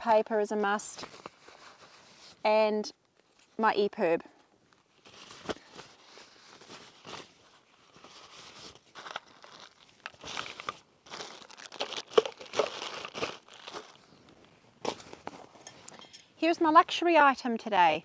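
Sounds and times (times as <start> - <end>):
plastic bags crinkling: 5.0 - 14.4.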